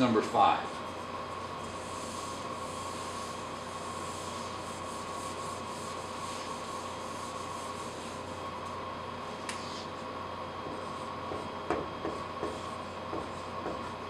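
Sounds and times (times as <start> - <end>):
steady hum: 0.0 - 14.0
whiteboard eraser rubbing: 1.4 - 8.3.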